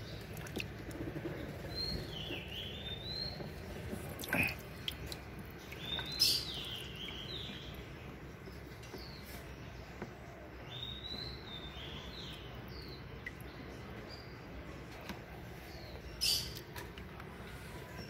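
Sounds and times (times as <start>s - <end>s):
water splashing in tub: 0.0s - 2.5s, 3.5s - 7.7s
small birds chirping: 0.0s - 18.0s.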